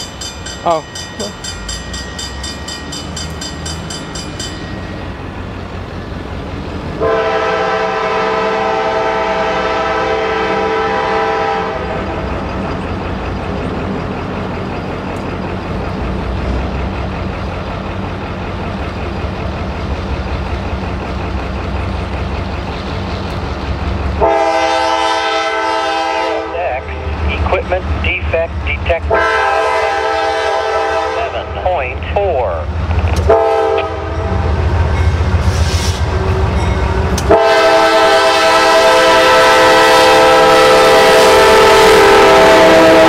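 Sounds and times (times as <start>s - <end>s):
rapid bell ringing: 0.0s - 5.2s
diesel locomotive engines rumbling: 0.0s - 43.0s
locomotive horn blast: 7.0s - 12.2s, 24.2s - 27.1s, 28.9s - 32.1s, 33.2s - 34.5s, 36.2s - 43.0s.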